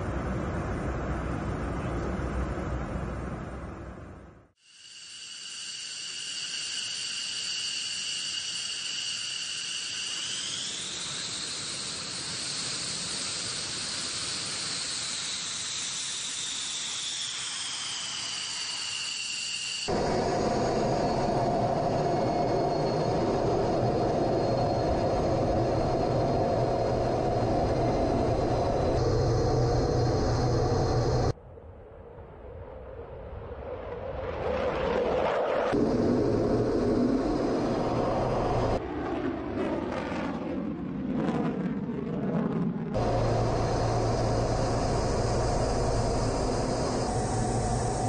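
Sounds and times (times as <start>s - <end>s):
jet engines whining: 5.0s - 31.4s, 34.5s - 48.0s
loud deep jet engine roar: 7.0s - 31.4s, 34.2s - 48.0s.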